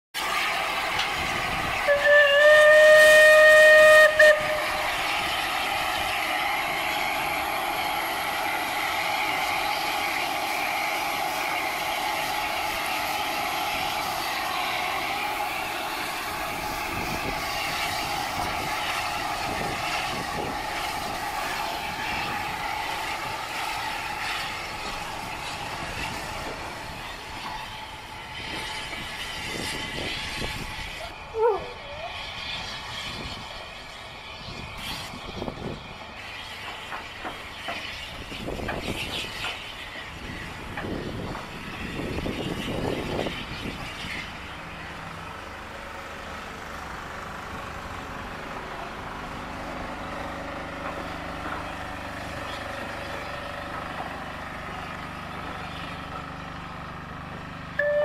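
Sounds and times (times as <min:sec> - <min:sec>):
steam locomotive whistle: 0:00.2 - 0:26.5, 0:57.8 - 0:58.0
train running: 0:00.2 - 0:58.0.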